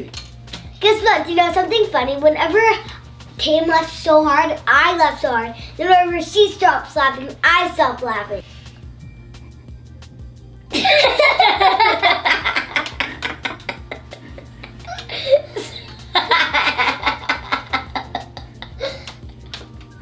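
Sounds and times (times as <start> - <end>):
girls laughing: 10.7 - 19.4.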